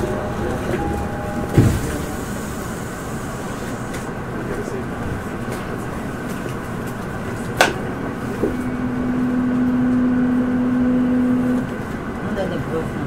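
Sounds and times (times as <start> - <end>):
low hum: 0.0 - 4.1, 8.4 - 11.7
subway car running noise: 0.0 - 13.0.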